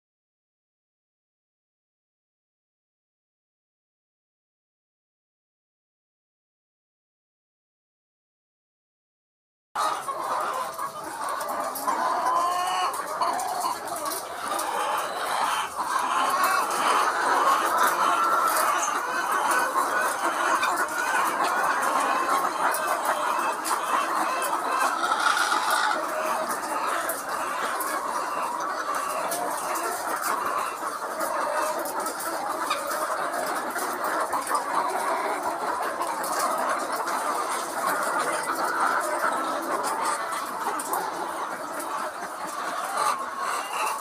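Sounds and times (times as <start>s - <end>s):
hens clucking: 9.8s - 44.0s.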